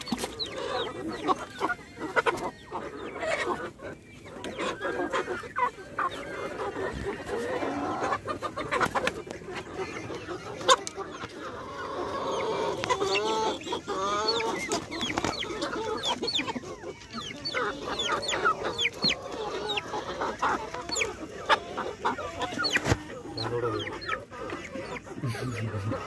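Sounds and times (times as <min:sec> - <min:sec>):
chickens clucking and calling: 0:00.0 - 0:26.0.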